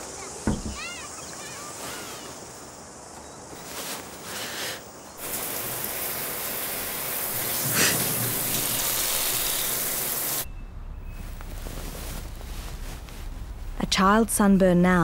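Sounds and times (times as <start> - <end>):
shower spray running: 5.2 - 10.5.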